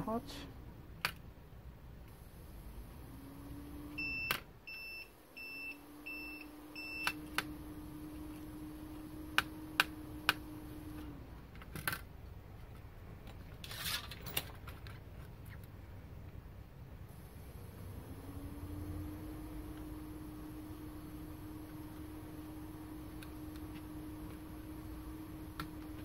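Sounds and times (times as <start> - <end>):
low electrical hum: 0.0 - 26.0
short electronic beeps: 4.0 - 7.2.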